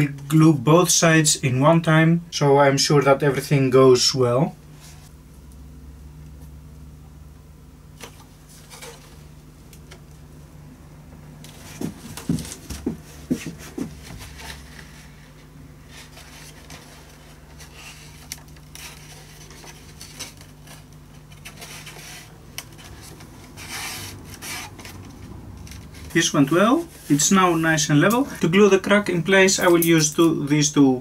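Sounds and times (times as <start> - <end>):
steady low hum: 0.0 - 31.0
hands rubbing wood: 11.5 - 27.7.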